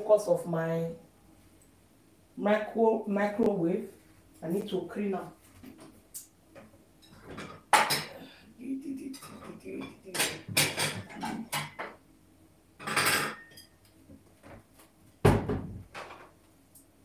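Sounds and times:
kitchen things clattering: 0:07.0 - 0:08.2, 0:09.0 - 0:12.0, 0:12.8 - 0:13.8.

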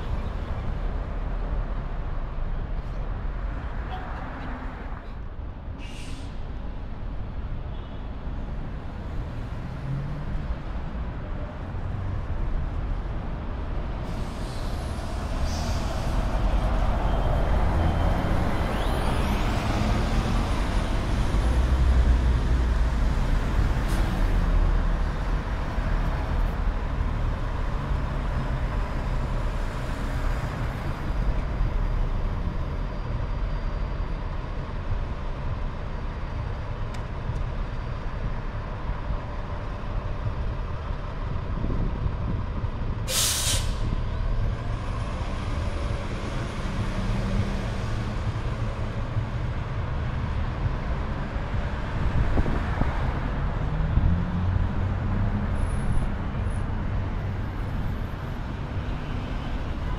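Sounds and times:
low rumble of street traffic: 0:00.0 - 0:59.9
air brakes hissing: 0:05.8 - 0:06.4, 0:14.1 - 0:16.4, 0:43.1 - 0:44.0.

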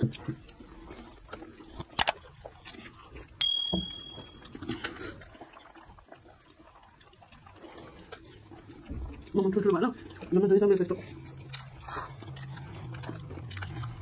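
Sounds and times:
soft eating sounds: 0:00.0 - 0:14.0
metallic clink on tableware: 0:03.4 - 0:04.4.

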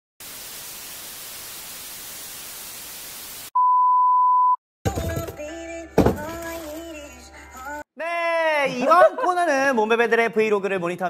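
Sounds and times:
television static hiss: 0:00.2 - 0:03.5
loud steady beep tone: 0:03.6 - 0:04.6
music: 0:04.9 - 0:07.9.

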